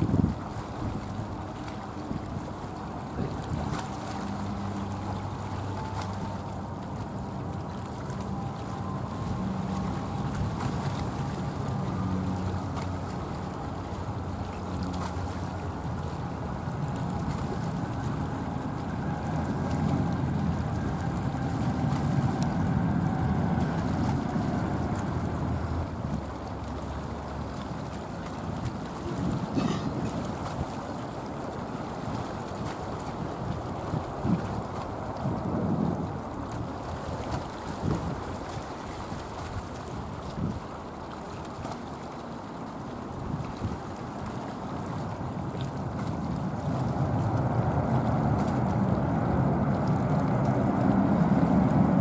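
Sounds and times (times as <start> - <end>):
wind buffeting microphone: 0.0 - 40.9, 43.1 - 52.0
distant jet engines rumbling: 29.0 - 30.7.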